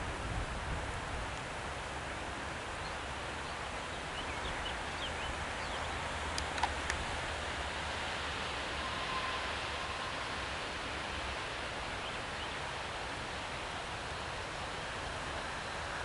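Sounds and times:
rain hiss in woodland: 0.0 - 16.0
sharp clicks: 6.3 - 7.0.

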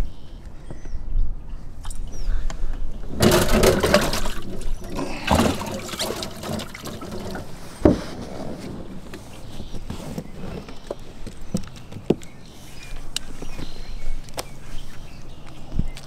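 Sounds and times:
water splashing and trickling: 3.0 - 7.8.

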